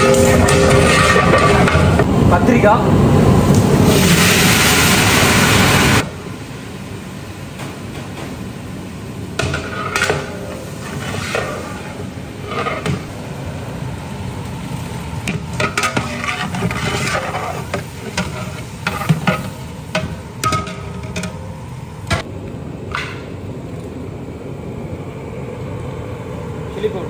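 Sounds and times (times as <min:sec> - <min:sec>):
metal ladle scraping a metal pot: 0:00.0 - 0:02.0, 0:15.6 - 0:19.6
oil sizzling: 0:03.0 - 0:24.0.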